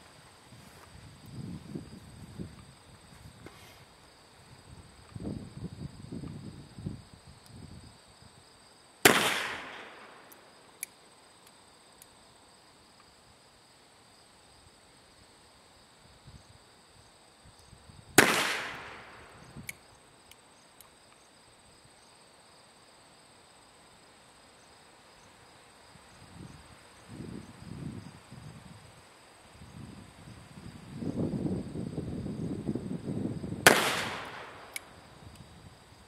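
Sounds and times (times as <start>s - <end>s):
insects trilling: 0.0s - 36.0s
sharp click: 33.7s - 35.4s.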